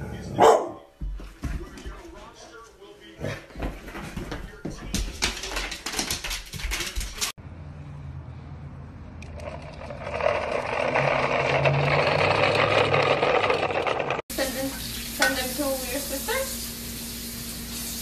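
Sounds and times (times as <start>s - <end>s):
plastic wheels rolling on asphalt: 9.3s - 14.2s.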